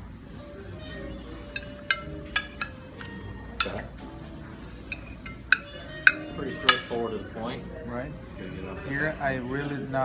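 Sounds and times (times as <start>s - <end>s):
cutlery clinking on porcelain plates: 0.8s - 7.2s.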